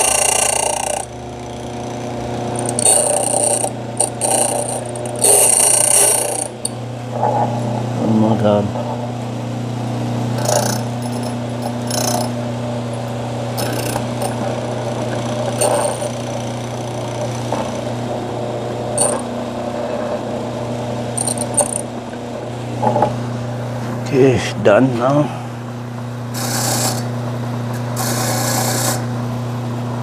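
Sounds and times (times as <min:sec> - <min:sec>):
cutter wheel cutting key blank: 0:00.0 - 0:06.8, 0:26.3 - 0:27.1, 0:28.0 - 0:29.1
machine motor humming: 0:00.0 - 0:30.0.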